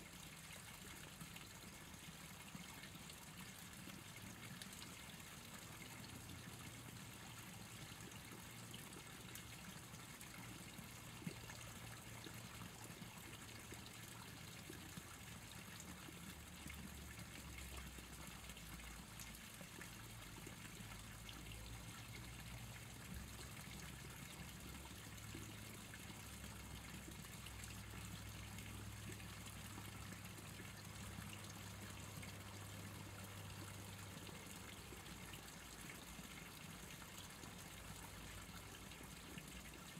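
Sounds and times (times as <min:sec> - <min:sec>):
trickling water: 0:00.0 - 0:39.9.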